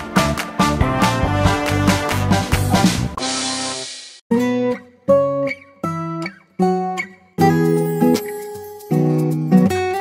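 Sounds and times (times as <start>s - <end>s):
strummed acoustic guitar: 4.3s - 10.0s.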